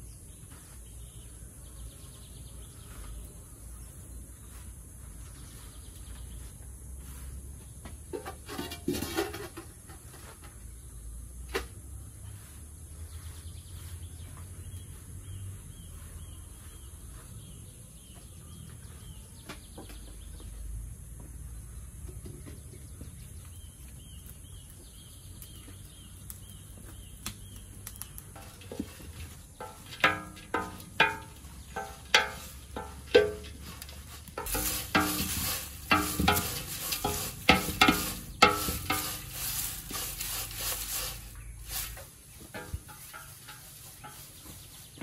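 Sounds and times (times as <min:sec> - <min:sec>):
bird chirping: 0:12.4 - 0:20.7, 0:21.6 - 0:28.6
leaves rustling on bamboo tray: 0:25.7 - 0:45.0.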